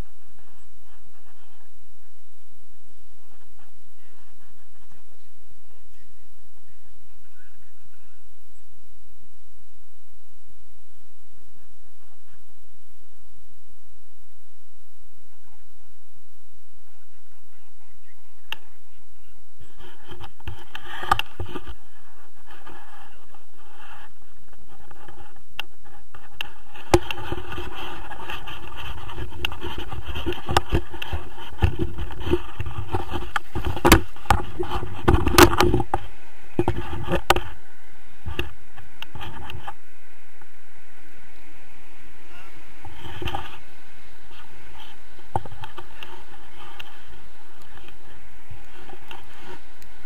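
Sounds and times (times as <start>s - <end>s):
wind rumble: 0.0s - 50.0s
camera handling scrapes and knocks: 26.2s - 37.6s.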